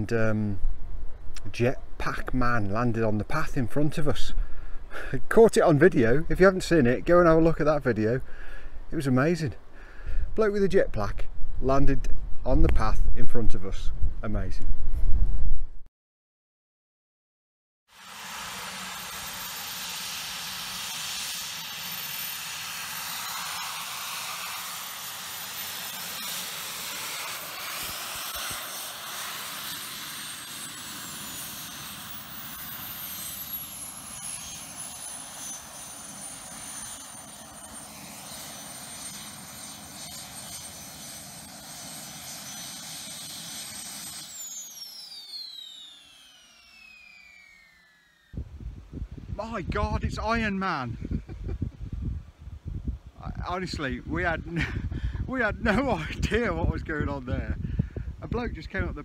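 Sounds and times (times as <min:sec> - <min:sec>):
jet turbines whining: 0:18.3 - 0:36.8.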